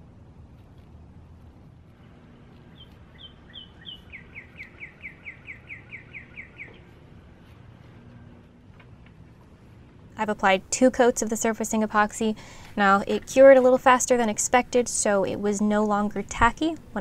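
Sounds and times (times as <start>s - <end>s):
low background rumble: 0.0s - 17.0s
songbird singing: 2.4s - 8.2s.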